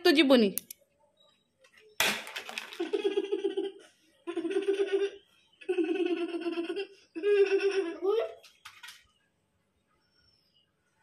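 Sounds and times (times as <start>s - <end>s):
young child giggling: 2.8s - 8.4s.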